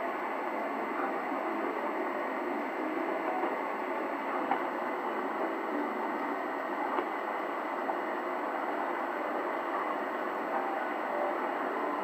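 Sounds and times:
shortwave radio static: 0.0 - 12.0.

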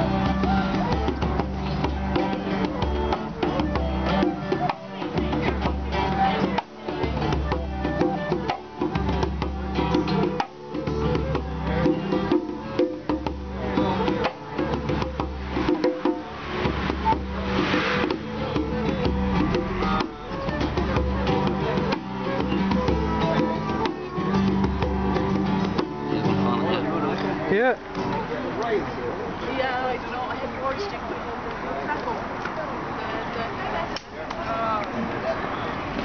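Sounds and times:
djembe hand drum: 0.0 - 28.3
flute melody: 0.0 - 28.5
acoustic guitar: 0.0 - 31.3.

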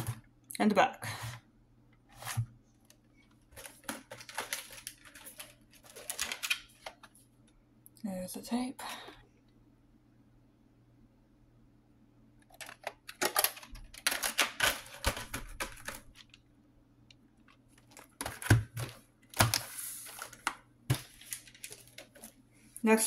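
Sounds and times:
plastic cassette clicks and scrapes: 12.5 - 16.4.

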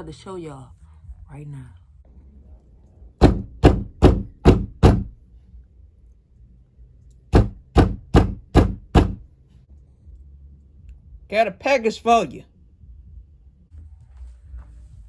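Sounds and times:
knocking on wooden door: 3.2 - 5.1, 7.4 - 9.2.

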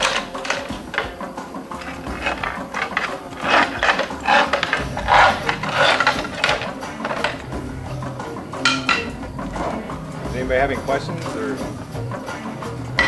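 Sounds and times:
tool scraping slate: 0.0 - 7.5.

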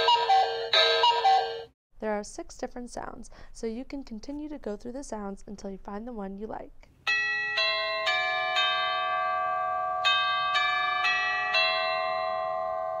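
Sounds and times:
doorbell chime melody: 0.0 - 1.7, 7.1 - 13.0.

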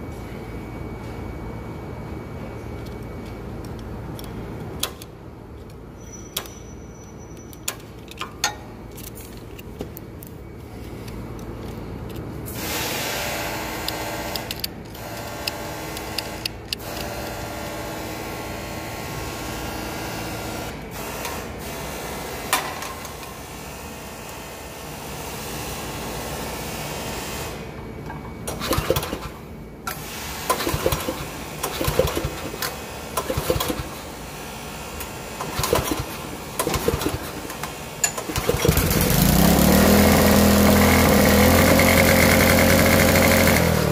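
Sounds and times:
small petrol engine running: 30.5 - 34.0, 38.2 - 43.9.

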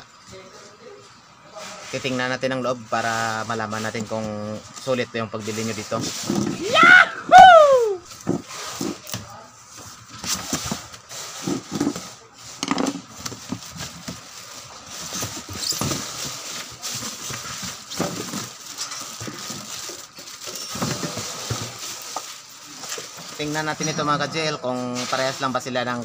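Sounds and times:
cardboard flaps scraping: 8.1 - 23.6
tape peeled off cardboard box: 10.1 - 23.2.

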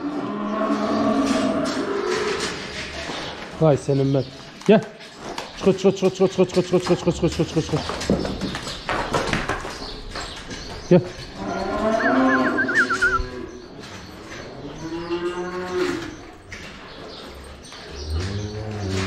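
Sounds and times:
cows mooing: 0.0 - 2.6, 11.4 - 13.7, 14.4 - 16.3.

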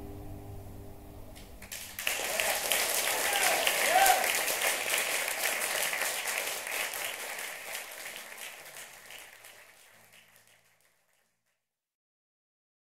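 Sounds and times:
audience applauding: 1.4 - 11.4.

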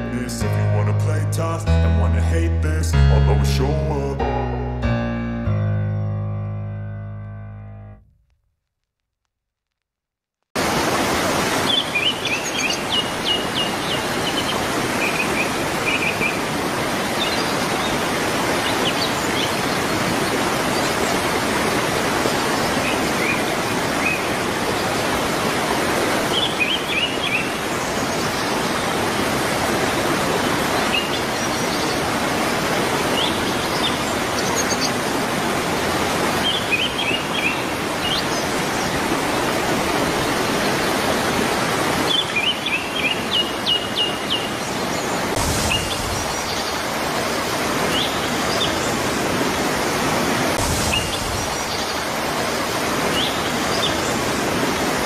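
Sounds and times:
waterfall splashing onto rocks: 10.6 - 43.4, 45.2 - 55.0.

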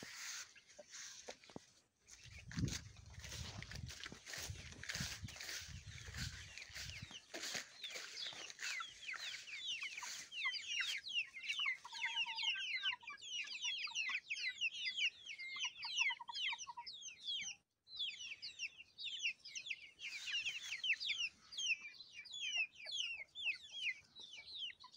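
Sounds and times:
footsteps through grass: 0.0 - 11.9
chicks peeping: 0.0 - 24.9
chick trills: 2.2 - 17.6.

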